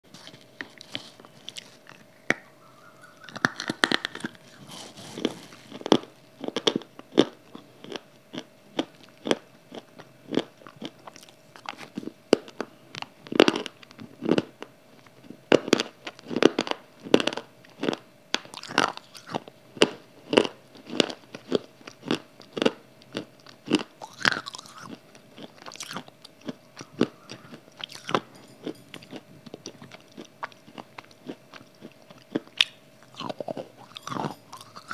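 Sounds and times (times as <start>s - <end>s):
faint steady hum: 0.0s - 34.9s
chewing hard dried clay: 0.1s - 34.9s.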